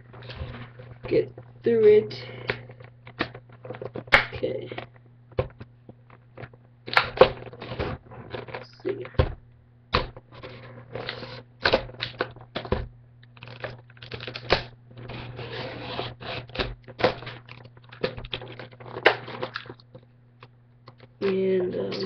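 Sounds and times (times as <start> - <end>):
packaging rustling and scratching: 0.0 - 1.5, 2.7 - 4.2, 13.3 - 20.1
low electrical hum: 0.0 - 22.0.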